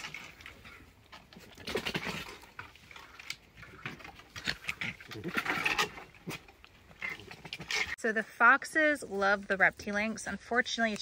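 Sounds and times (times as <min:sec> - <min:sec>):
foxes eating: 0:00.0 - 0:08.0.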